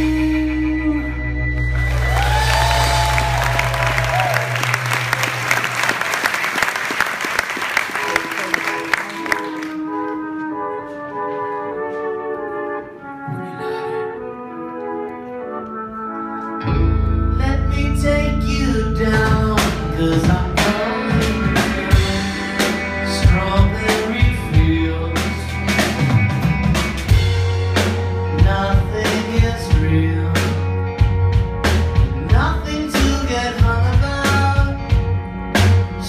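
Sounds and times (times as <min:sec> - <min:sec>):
person singing: 0:00.0 - 0:01.6, 0:17.3 - 0:25.8, 0:28.3 - 0:30.8, 0:32.0 - 0:35.0
bass: 0:00.0 - 0:09.8, 0:16.6 - 0:36.0
piano: 0:00.0 - 0:36.0
electric guitar: 0:16.5 - 0:36.0
drum kit beat: 0:19.0 - 0:36.0.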